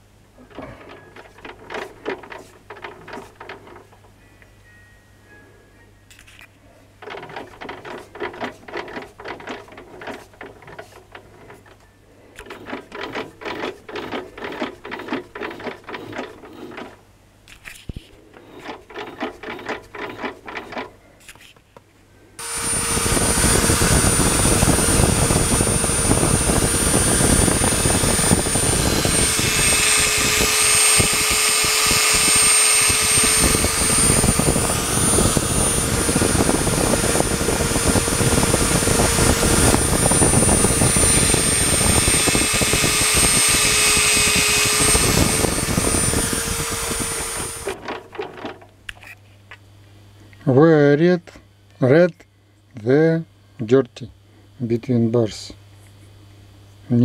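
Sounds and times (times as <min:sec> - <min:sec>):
rapid irregular clicking: 0:00.5 - 0:04.1, 0:07.0 - 0:11.8, 0:12.4 - 0:17.0, 0:18.3 - 0:20.9
lathe running with high whine: 0:00.8 - 0:03.9, 0:07.0 - 0:11.8, 0:12.4 - 0:17.0, 0:22.4 - 0:47.8.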